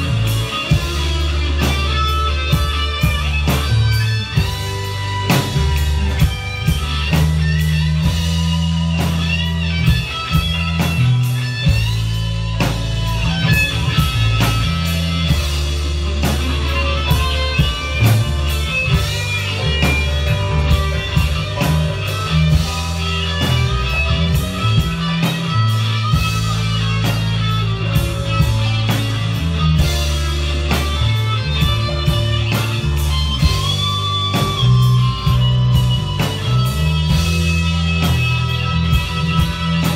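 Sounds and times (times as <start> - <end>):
bass notes: 0.0 - 39.9
drum beat: 0.0 - 39.9
lead electric guitar: 0.0 - 39.9.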